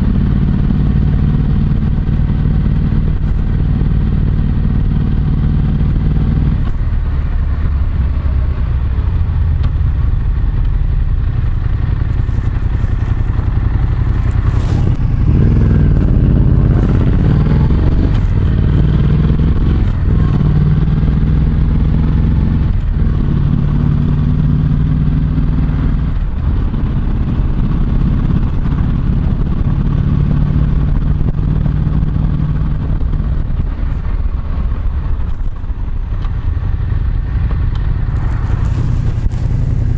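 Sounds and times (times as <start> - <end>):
motorcycle engine riding: 0.0 - 39.9
fabric rustling on microphone: 12.1 - 18.6, 38.1 - 39.9.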